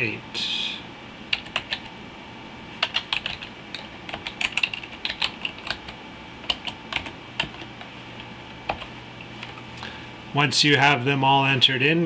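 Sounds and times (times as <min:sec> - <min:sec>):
typing on computer keyboard: 0:01.3 - 0:01.9, 0:02.8 - 0:07.8.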